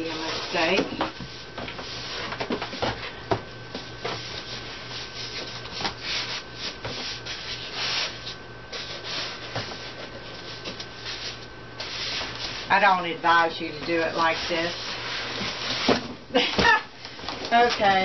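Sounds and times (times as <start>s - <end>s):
cardboard and styrofoam scraping: 0.0s - 3.1s, 4.0s - 13.0s, 13.9s - 16.0s.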